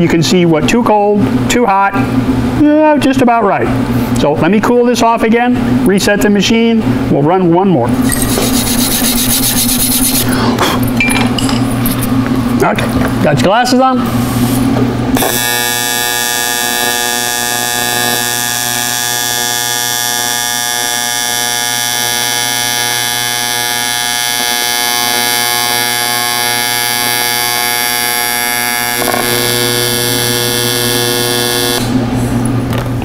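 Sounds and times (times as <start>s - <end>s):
welding arc buzzing: 8.0s - 11.0s, 14.0s - 33.0s.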